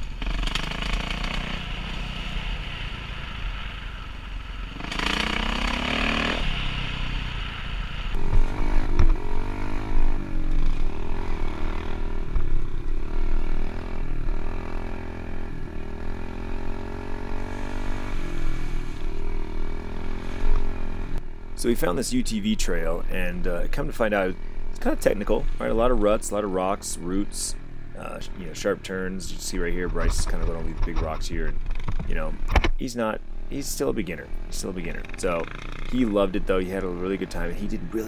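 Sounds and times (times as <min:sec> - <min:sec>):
dirt bike engine revving: 0:00.0 - 0:21.2, 0:33.5 - 0:38.0.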